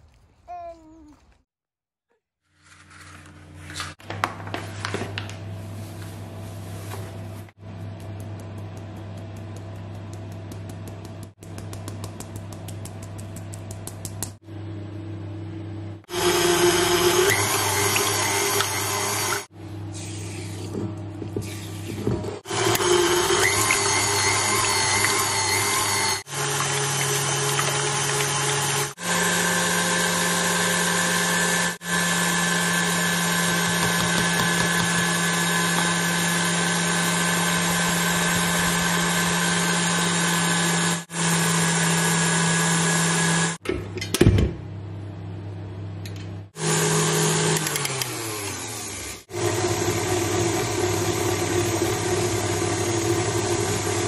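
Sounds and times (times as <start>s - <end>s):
stand mixer motor whine: 16.1s - 19.5s, 22.4s - 43.6s, 46.6s - 54.0s
whisk beating in steel bowl: 33.1s - 39.1s.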